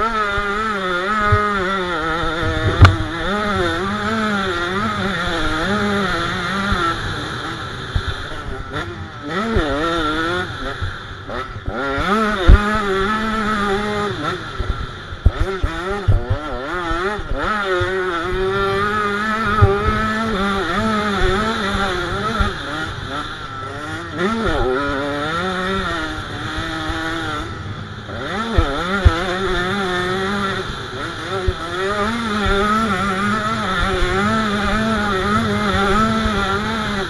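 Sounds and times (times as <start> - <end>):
two-stroke motorcycle engine revving: 0.0 - 37.0
low thumps and sharp knocks: 2.2 - 3.5.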